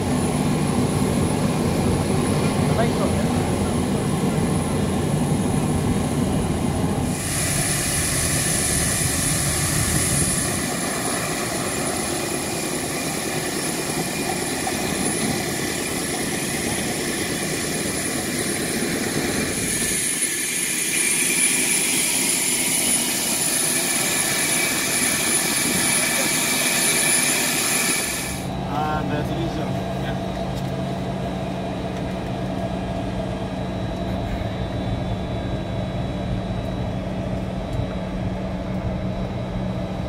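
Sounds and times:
jet turbine whine: 0:00.0 - 0:40.0
broad rushing noise: 0:02.6 - 0:31.9.

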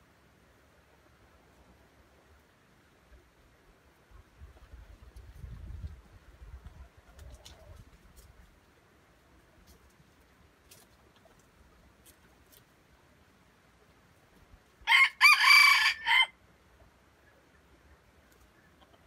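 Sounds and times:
rooster crowing: 0:14.8 - 0:16.4.

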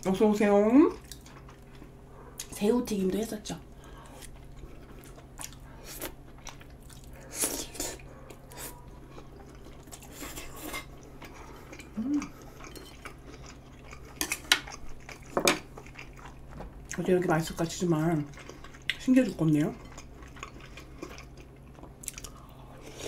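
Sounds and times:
person slurping and chewing: 0:04.2 - 0:16.4, 0:19.8 - 0:23.0
chopsticks clinking on dishes: 0:12.6 - 0:13.1.

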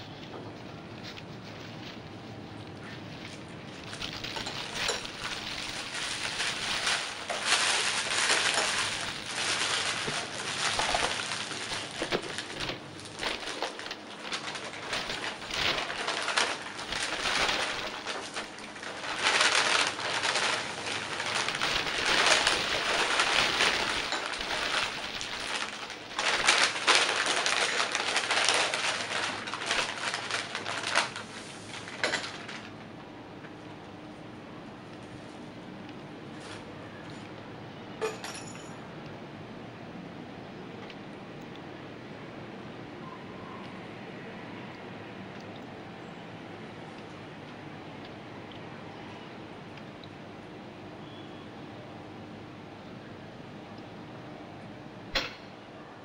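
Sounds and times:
paper wrappers crinkling: 0:00.0 - 0:33.0.

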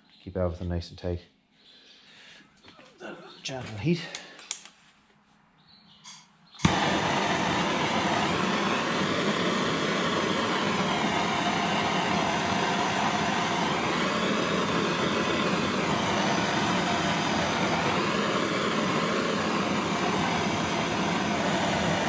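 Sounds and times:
blowtorch flame hissing: 0:06.6 - 0:22.0
blowtorch igniting click: 0:06.6 - 0:22.0.

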